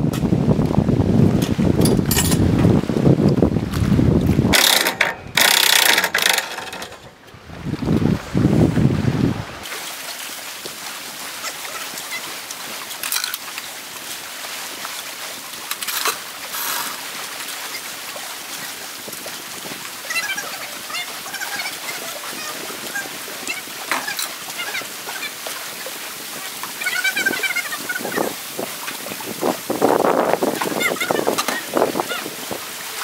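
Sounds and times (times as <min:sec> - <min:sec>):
lake water: 0:00.0 - 0:33.0
wind: 0:00.0 - 0:33.0.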